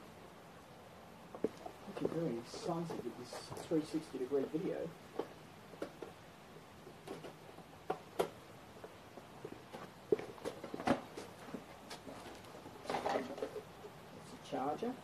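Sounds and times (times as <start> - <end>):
sharp clicks and knocks: 6.9 - 8.4.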